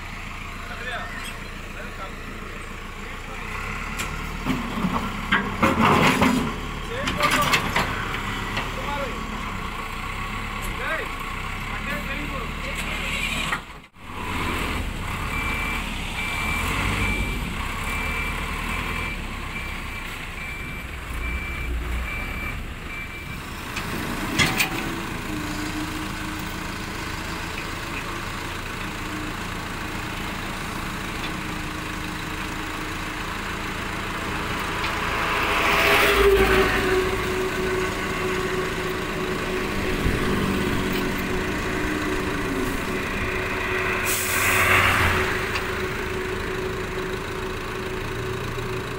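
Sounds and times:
diesel engines running: 0.0s - 48.9s
truck engine revving: 3.3s - 19.8s, 31.8s - 48.9s
reversing alarm beeping: 14.2s - 23.6s, 35.4s - 47.6s
hydraulic hoist whine: 34.2s - 48.2s.

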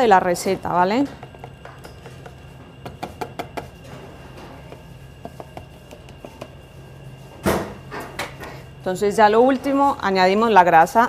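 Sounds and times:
steady low hum: 0.0s - 11.0s
utensils clicking on steel bowls: 0.9s - 3.8s.

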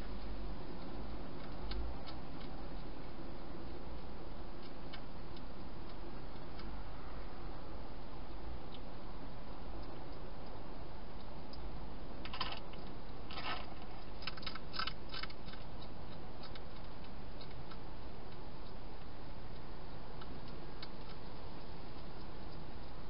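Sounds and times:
hedgehog crunching food: 12.2s - 23.0s.

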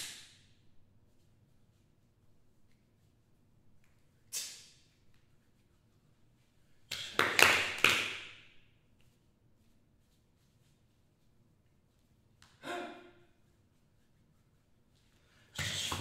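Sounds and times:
body percussion slaps: 0.0s - 0.5s, 6.9s - 8.6s, 15.6s - 16.0s.

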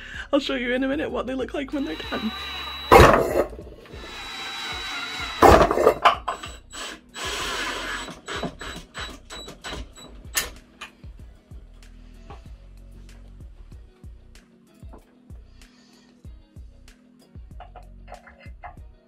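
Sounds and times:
cordless drill boring through metal: 1.7s - 10.3s.

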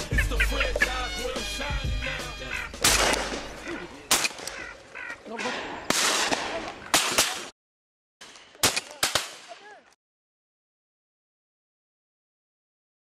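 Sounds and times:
hip-hop music: 0.0s - 3.9s
shotgun shots: 2.8s - 4.6s, 5.4s - 7.5s, 8.2s - 9.7s.

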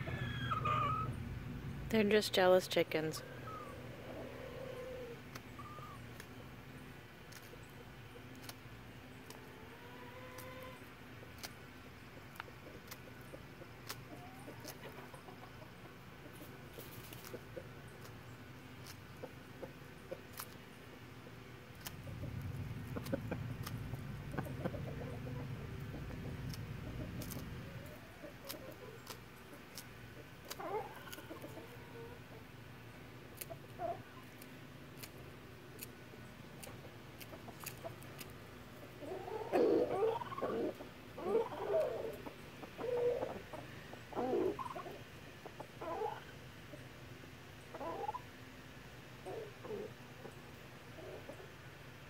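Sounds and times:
fowl clucking: 0.0s - 1.1s, 22.0s - 29.6s, 39.0s - 46.3s
beaks pecking at leaves: 2.0s - 45.0s.

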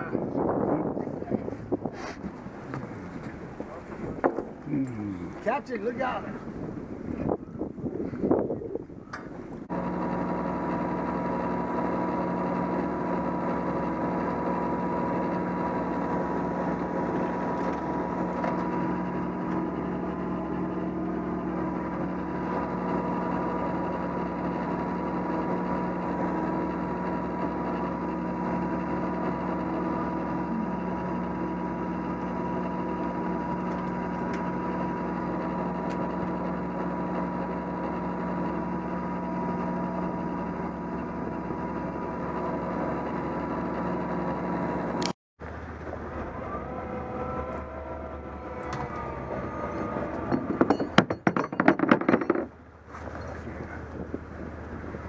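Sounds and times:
boat engine running: 0.0s - 55.0s
clattering knocks: 50.2s - 52.6s.

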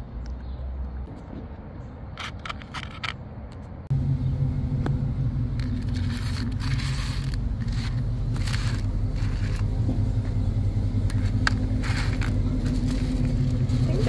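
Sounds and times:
steady low hum: 3.8s - 14.0s.

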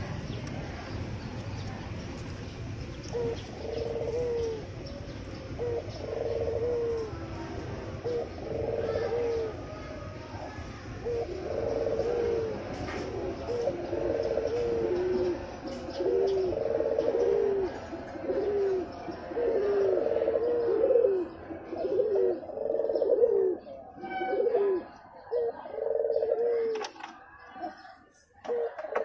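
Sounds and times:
dove cooing: 3.0s - 29.0s.

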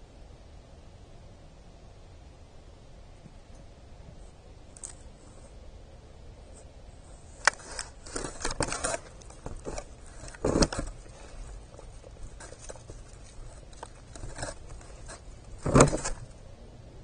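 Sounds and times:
deer crunching seed: 4.7s - 5.4s, 7.0s - 16.4s
muzzle scraping seed tray: 7.0s - 16.4s.

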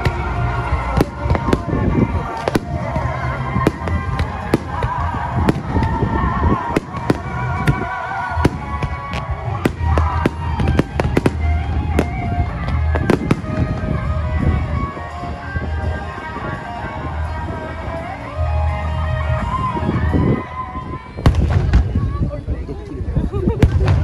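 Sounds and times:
fireworks bursting: 0.0s - 15.3s, 21.2s - 22.2s, 23.6s - 24.0s
music playing: 0.0s - 24.0s.

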